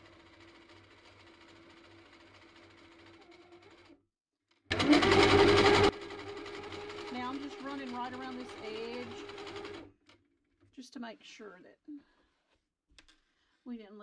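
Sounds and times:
sewing machine stitching: 0:00.0 - 0:04.0, 0:04.7 - 0:09.9.

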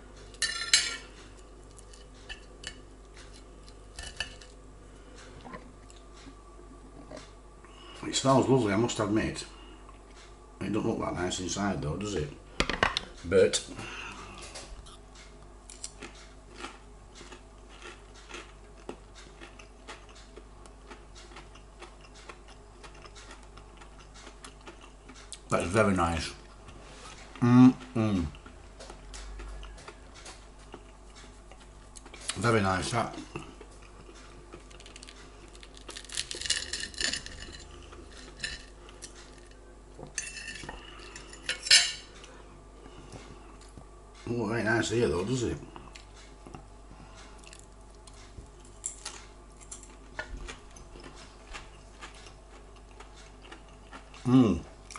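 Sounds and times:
faint low hum: 0:00.0 - 0:54.9
person chewing crispy food: 0:15.6 - 0:25.5, 0:27.1 - 0:32.4, 0:33.2 - 0:39.7, 0:45.7 - 0:54.9.

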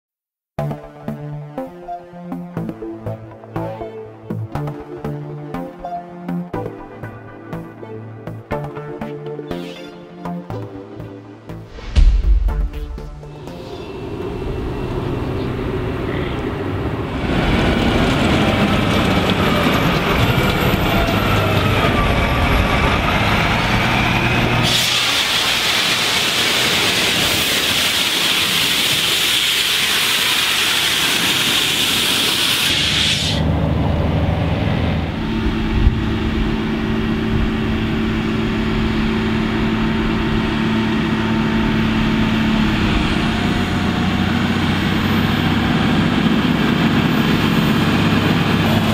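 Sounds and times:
tractor engines: 0:13.5 - 0:48.9
loud rushing hiss: 0:24.6 - 0:33.5.

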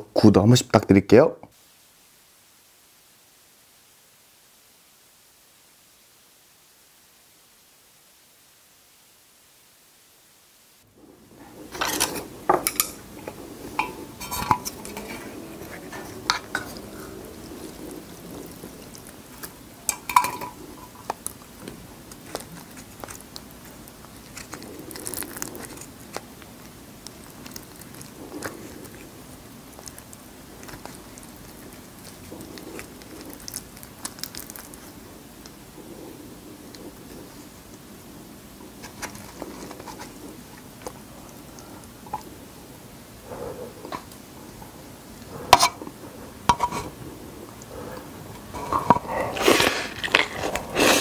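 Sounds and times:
chopsticks clinking on metal pot: 0:11.8 - 0:15.3, 0:19.9 - 0:20.6.

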